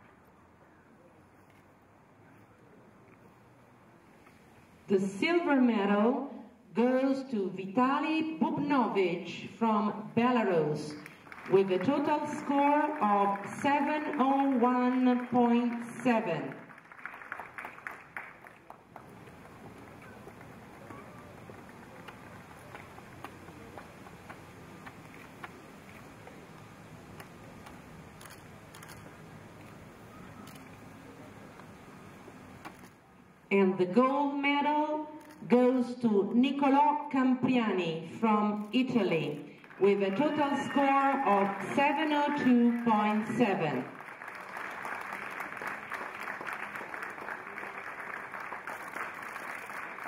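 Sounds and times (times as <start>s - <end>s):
low background noise: 0.0s - 50.0s
audience applauding: 11.0s - 26.0s, 39.6s - 50.0s.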